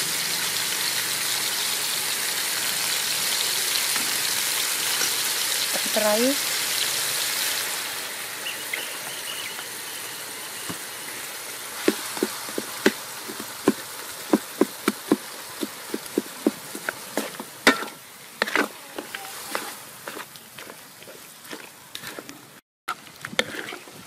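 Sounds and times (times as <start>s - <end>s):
vegetables frying in a wok: 0.0s - 24.0s.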